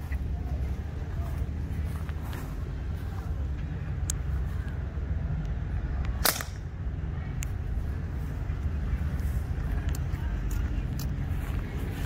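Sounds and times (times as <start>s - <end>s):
low outdoor rumble: 0.0s - 12.0s
air rifle shot: 6.2s - 6.6s.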